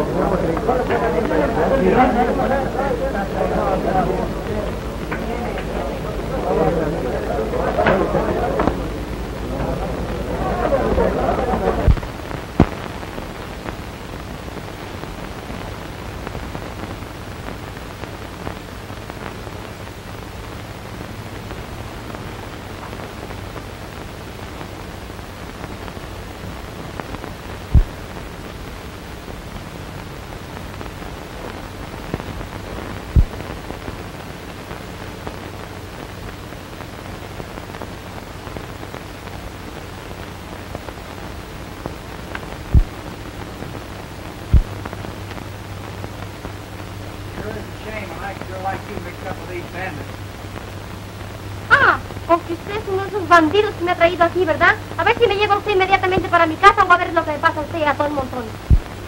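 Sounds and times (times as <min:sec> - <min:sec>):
film soundtrack hiss and hum: 0:00.0 - 0:59.0
sharp pops: 0:11.6 - 0:13.8, 0:33.0 - 0:33.6.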